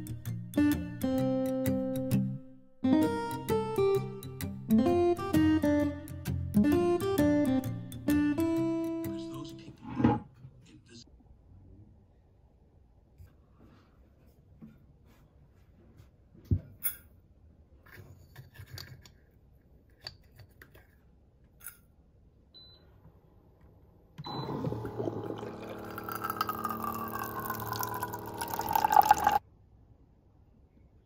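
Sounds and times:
water pouring into metal mug: 24.7 - 29.4.

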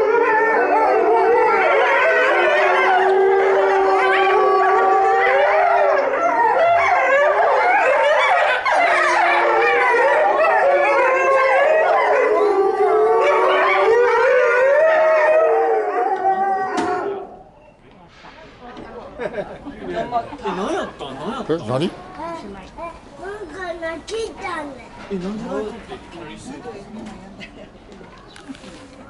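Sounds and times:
wolves howling in chorus: 0.0 - 17.5.

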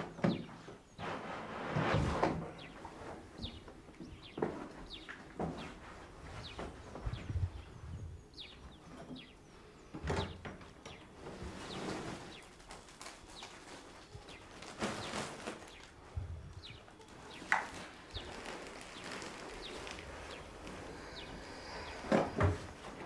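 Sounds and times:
person moving about: 0.7 - 9.3, 10.9 - 23.0
large sack rustling: 11.2 - 23.0.

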